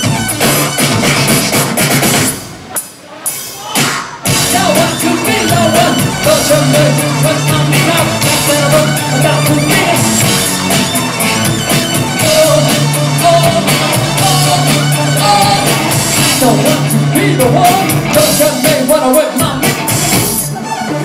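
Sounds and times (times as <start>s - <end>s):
drums and cymbals: 0.0s - 21.0s
live rock band: 0.0s - 21.0s
sung vocals: 3.8s - 10.6s, 12.0s - 19.9s.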